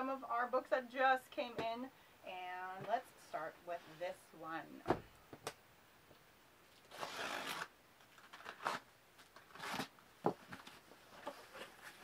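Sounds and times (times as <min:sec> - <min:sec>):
packing tape tearing: 0:06.8 - 0:09.9.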